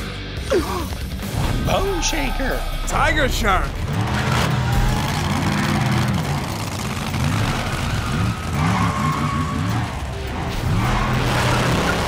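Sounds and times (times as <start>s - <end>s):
truck engine revving: 3.2s - 12.0s.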